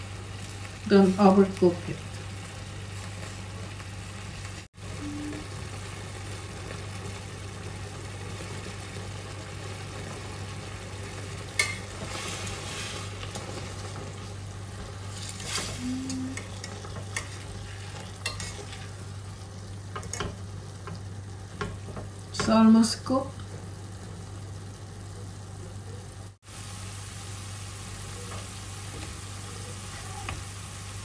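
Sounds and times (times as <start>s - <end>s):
fish sizzling in a frying pan: 0.0s - 31.0s
metal utensils clinking on pan: 11.6s - 11.9s, 18.2s - 18.9s.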